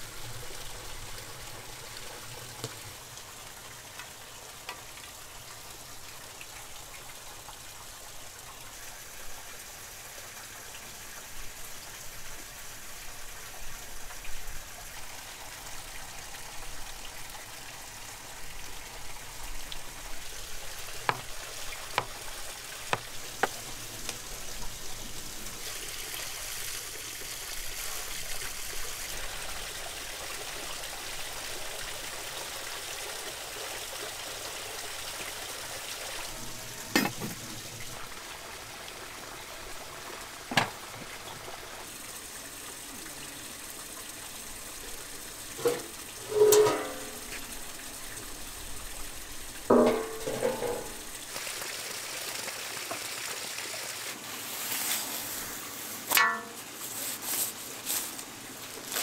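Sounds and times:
watery rushing: 0:00.0 - 0:56.8
sharp knocks and clinks: 0:49.7 - 0:51.0, 0:56.1 - 0:56.6.

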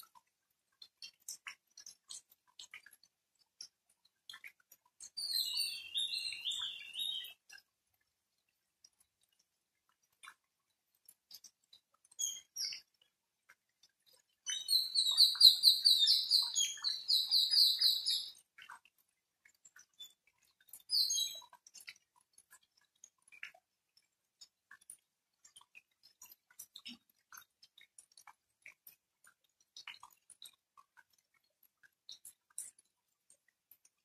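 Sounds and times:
rainwater dripping: 0:00.0 - 0:34.0
bird chirping: 0:05.1 - 0:07.4, 0:14.5 - 0:18.4, 0:20.9 - 0:21.4.

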